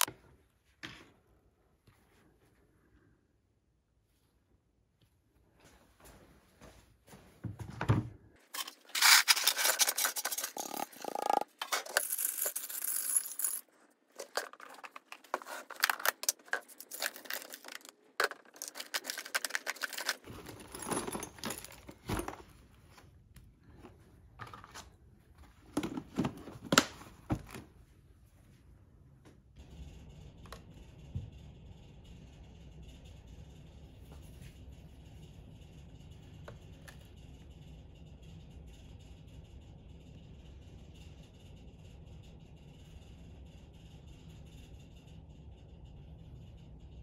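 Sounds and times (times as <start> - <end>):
metal pieces clinking into plastic tub: 8.5 - 22.4.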